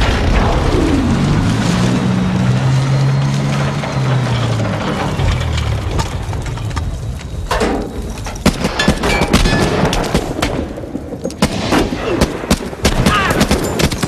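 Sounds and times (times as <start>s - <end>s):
low rumble: 0.0s - 12.0s
rapid rifle shots: 11.4s - 14.0s.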